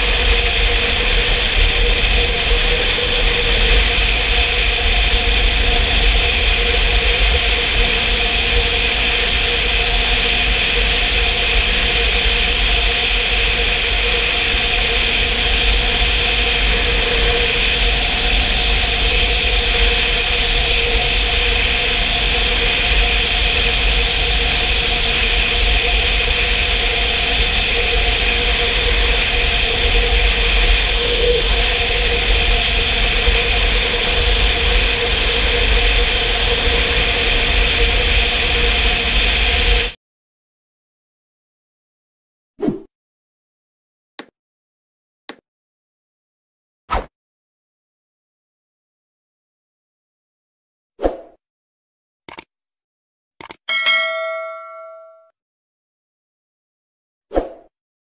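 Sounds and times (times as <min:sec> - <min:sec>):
motorcycle engine drone: 0:00.0 - 0:40.0.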